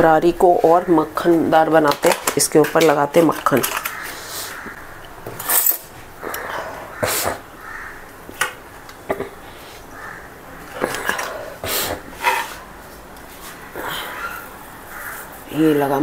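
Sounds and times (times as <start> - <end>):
kitchen items clicking and knocking: 1.6 - 4.1.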